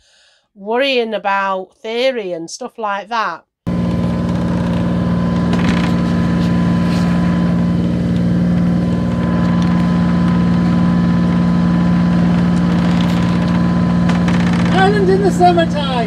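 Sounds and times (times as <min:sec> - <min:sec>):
boat diesel engine droning: 0:03.7 - 0:16.0.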